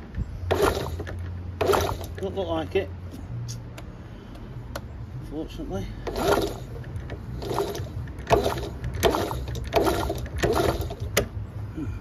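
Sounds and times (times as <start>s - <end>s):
motorcycle kick-starter strokes: 0.0s - 2.4s, 6.0s - 11.4s.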